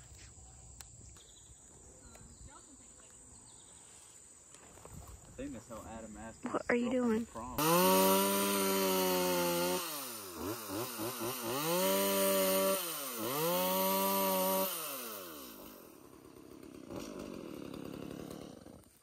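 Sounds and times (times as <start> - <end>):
chainsaw engine revving: 7.6 - 19.0
chainsaw idling: 7.6 - 19.0.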